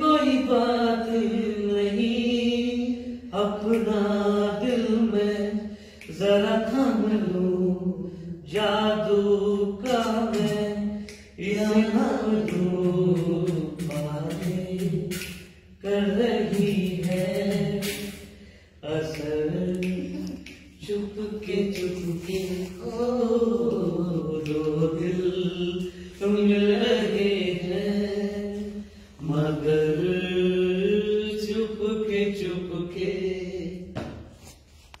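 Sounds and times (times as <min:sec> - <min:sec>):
man singing unaccompanied: 0:00.0 - 0:18.2, 0:18.8 - 0:34.0
singer breathing: 0:05.6 - 0:06.1, 0:18.1 - 0:18.8, 0:28.7 - 0:29.2.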